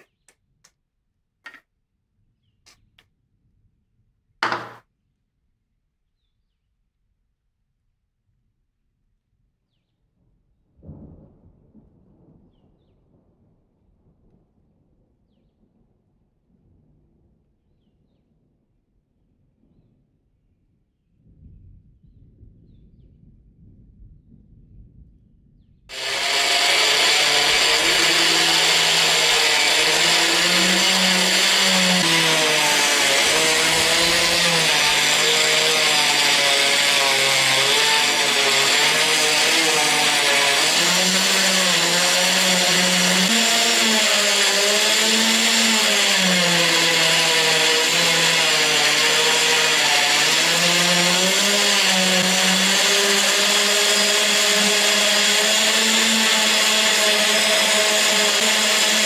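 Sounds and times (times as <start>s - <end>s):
rotary tool whine: 25.9s - 59.0s.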